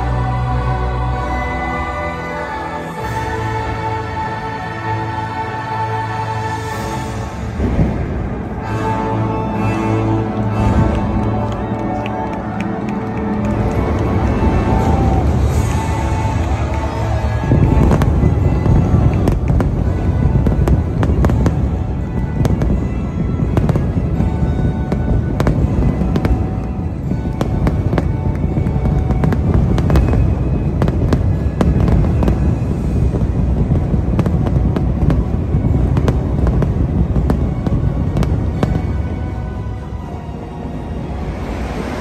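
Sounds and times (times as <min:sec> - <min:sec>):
music playing: 0:00.0 - 0:42.0
fireworks bangs and crackles: 0:07.0 - 0:40.2
deep rumble: 0:12.3 - 0:42.0.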